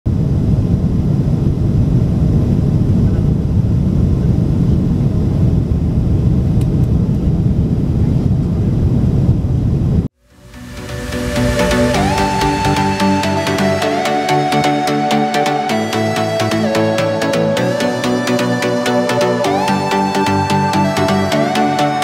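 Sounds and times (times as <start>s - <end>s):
jet airliner cabin roar: 0.1s - 18.0s.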